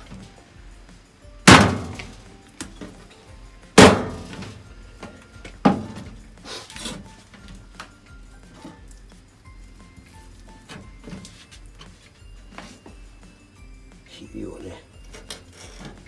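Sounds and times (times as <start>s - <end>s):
hard knocks on wooden board: 1.5s - 2.1s, 3.8s - 4.4s.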